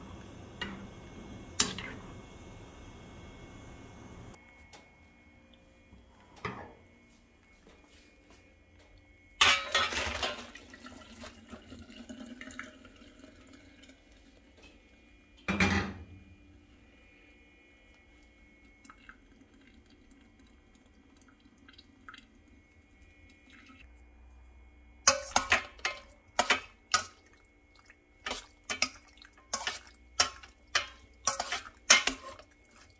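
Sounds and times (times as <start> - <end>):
pasta splashing into colander: 9.4 - 12.8, 25.1 - 32.9
water dripping: 18.1 - 23.8, 27.0 - 31.2.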